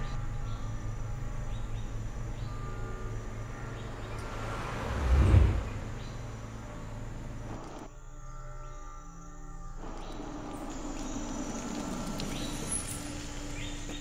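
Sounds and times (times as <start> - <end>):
cars driving on road: 2.8 - 7.9
passing vehicle whoosh: 3.8 - 6.7.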